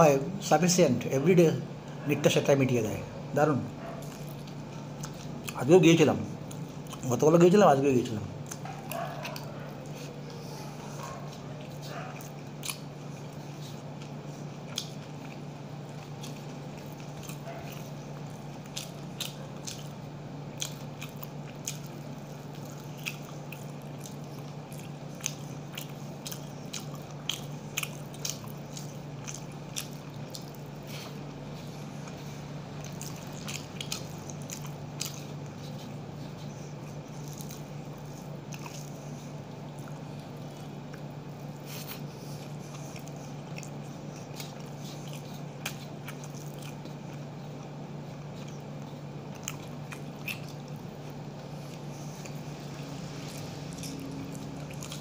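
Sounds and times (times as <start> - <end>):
steady low hum: 0.0 - 55.0
chewing smacks: 3.8 - 55.0.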